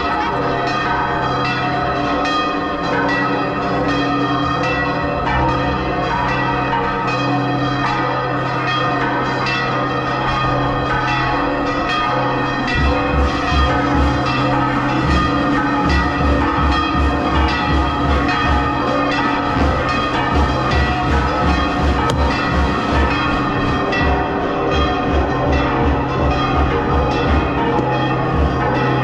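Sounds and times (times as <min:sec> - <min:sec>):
church bells pealing: 0:00.0 - 0:29.0
low rhythmic beats: 0:12.5 - 0:29.0.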